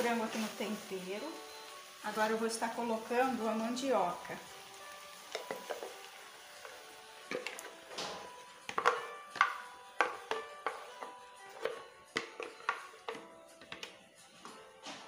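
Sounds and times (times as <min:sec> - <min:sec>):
soft background music: 0:00.0 - 0:15.0
spoon knocking on blender jar: 0:08.7 - 0:14.0.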